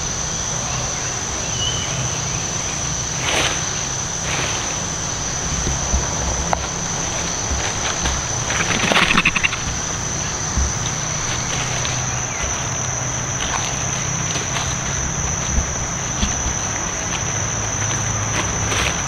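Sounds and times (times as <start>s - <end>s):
insects droning: 0.0s - 19.0s
rapid pulsing clicks: 5.1s - 18.0s.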